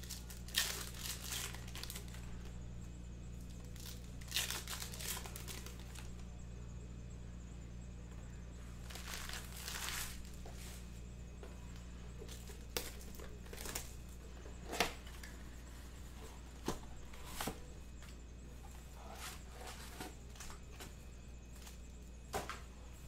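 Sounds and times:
cellophane crinkling: 0.0s - 2.5s, 3.4s - 6.2s, 8.7s - 10.7s, 12.2s - 16.6s
faint low hum: 0.0s - 23.0s.

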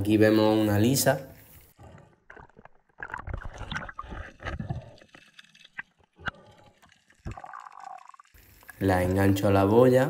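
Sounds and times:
underwater water noise: 0.3s - 10.0s
underwater clicks and knocks: 1.9s - 6.4s.

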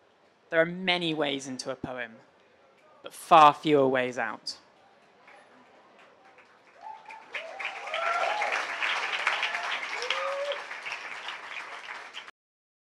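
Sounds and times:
audience applause: 5.3s - 12.3s.

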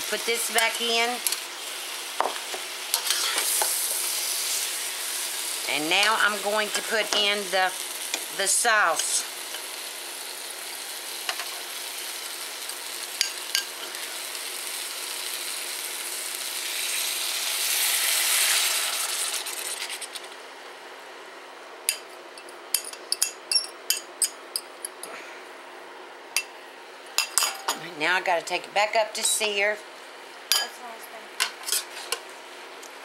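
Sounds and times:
food sizzling in a wok: 0.0s - 20.5s
fork scraping a bowl: 3.0s - 3.6s.

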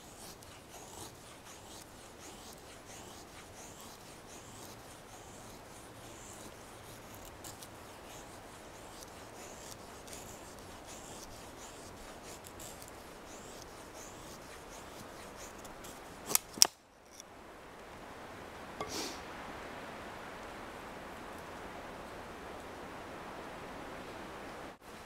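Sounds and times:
knife shaving wood: 0.0s - 17.2s.

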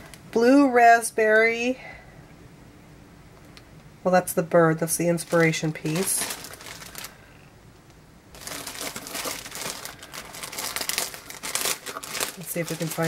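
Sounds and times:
plastic bag crinkling: 4.9s - 7.2s, 8.3s - 13.0s.

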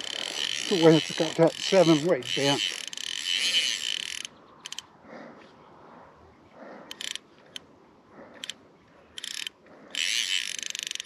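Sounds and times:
fishing reel drag clicking: 0.0s - 4.9s, 6.9s - 7.6s, 8.4s - 11.0s.

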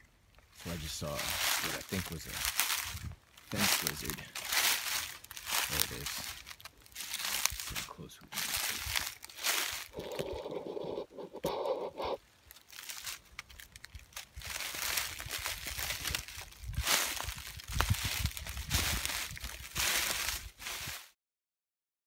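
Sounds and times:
rustling in dry leaves: 0.3s - 21.2s
footsteps crunching dry leaves: 0.5s - 21.2s.

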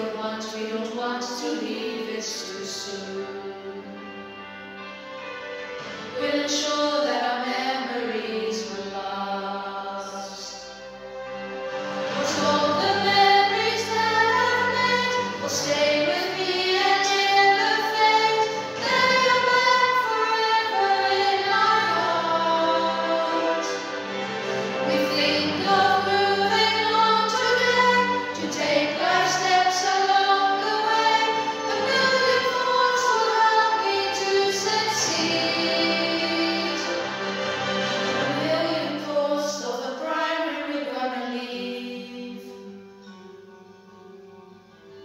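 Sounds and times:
instrumental accompaniment: 2.6s - 9.6s, 10.4s - 39.3s
voices singing together: 11.6s - 42.4s.

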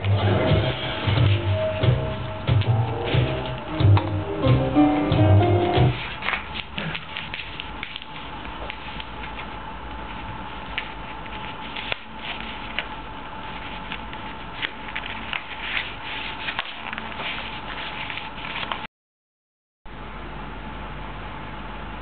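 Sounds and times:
music: 0.0s - 6.0s
kitten scratching and tapping paper: 5.9s - 18.8s
paper rustling and crackling: 5.9s - 18.9s.

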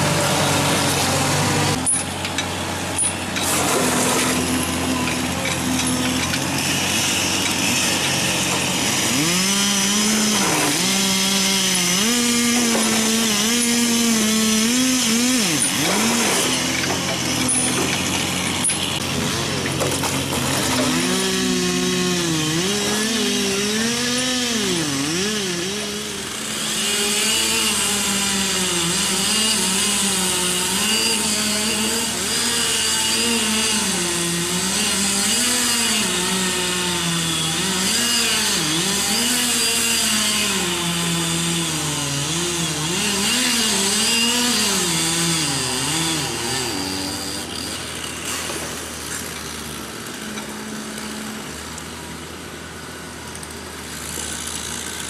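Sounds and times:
chainsaw engines cutting wood: 0.0s - 55.0s.

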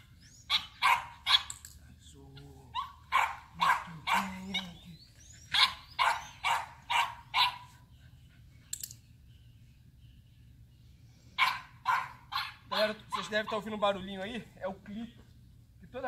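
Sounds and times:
dog barking: 0.5s - 1.5s, 2.8s - 4.8s, 5.5s - 7.7s, 11.4s - 13.7s.

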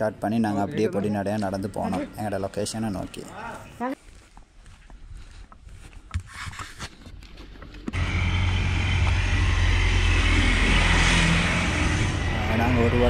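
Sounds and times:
motor vehicle rumble and hiss: 8.0s - 13.0s.

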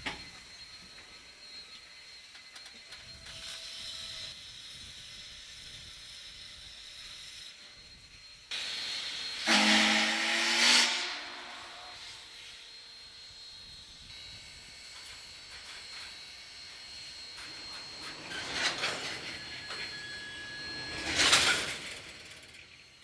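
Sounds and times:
steam hissing: 8.5s - 12.8s
steam whistle blast: 9.0s - 12.6s.

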